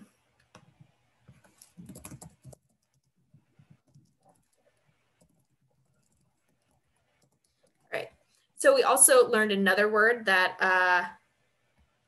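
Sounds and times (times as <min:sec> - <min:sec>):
typing on computer keyboard: 0:00.4 - 0:07.9.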